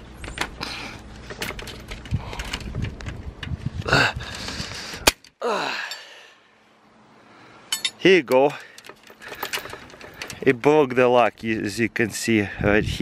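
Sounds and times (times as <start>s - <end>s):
wrenches clinking on padlock and chain: 7.7s - 11.1s.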